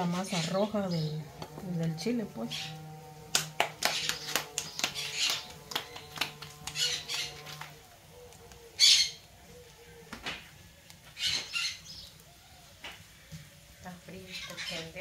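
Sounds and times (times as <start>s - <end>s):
wood fire crackling and popping: 0.0s - 15.0s
hands slapping dough: 3.3s - 7.7s.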